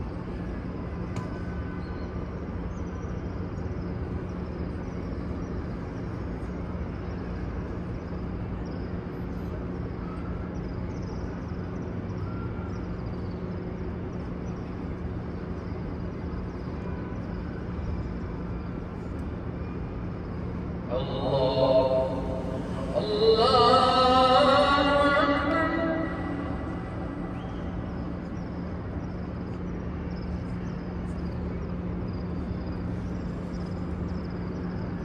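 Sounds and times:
crowd ambient noise: 0:04.4 - 0:35.0
low hum: 0:20.8 - 0:29.5.

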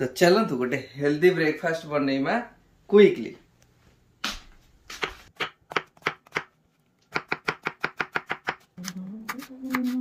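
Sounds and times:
knife chopping on wooden board: 0:04.9 - 0:06.5, 0:07.1 - 0:08.7.

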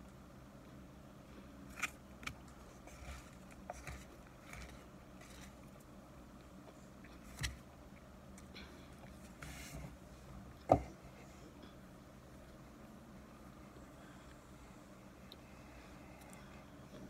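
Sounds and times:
utensil scraping cornstarch: 0:02.6 - 0:05.7.

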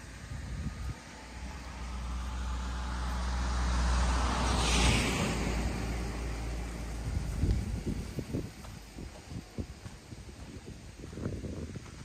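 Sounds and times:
car driving past: 0:00.0 - 0:09.4.

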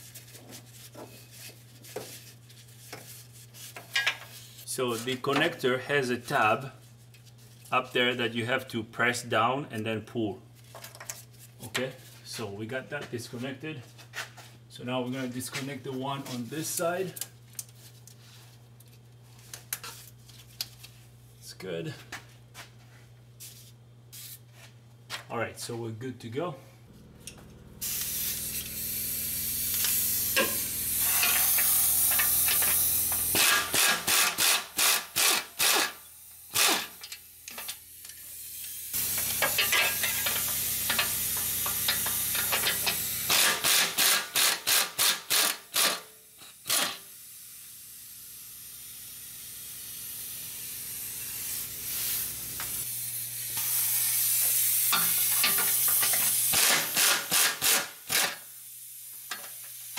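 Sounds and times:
pneumatic wrench quick bursts: 0:27.8 - 0:37.7, 0:38.5 - 0:47.1, 0:52.8 - 0:58.6
pneumatic wrench air hiss: 0:27.8 - 0:59.9.

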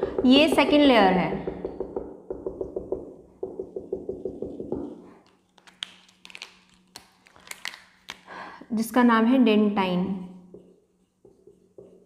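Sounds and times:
marker tapping on whiteboard: 0:00.0 - 0:05.3, 0:10.5 - 0:12.0.

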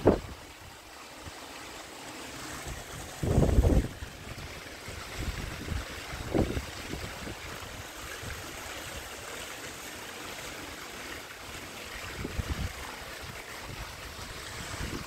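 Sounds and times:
wind gusting on microphone: 0:00.0 - 0:00.4, 0:02.6 - 0:08.4, 0:12.0 - 0:15.0.

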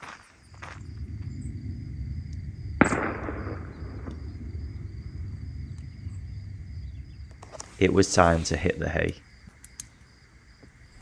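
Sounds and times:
low rumble: 0:00.6 - 0:09.2.

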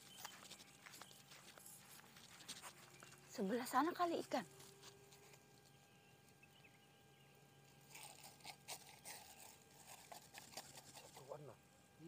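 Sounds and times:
nylon net crackling and rustling: 0:07.8 - 0:11.3.

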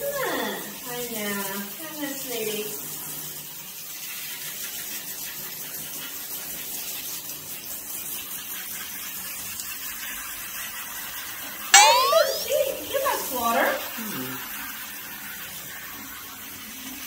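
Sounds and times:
shower head spraying water: 0:11.8 - 0:14.4.

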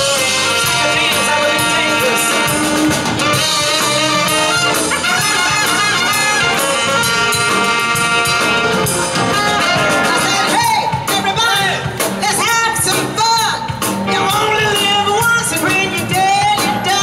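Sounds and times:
trumpet and trombone: 0:00.0 - 0:13.5
rhythm and blues band playing: 0:00.0 - 0:17.0.

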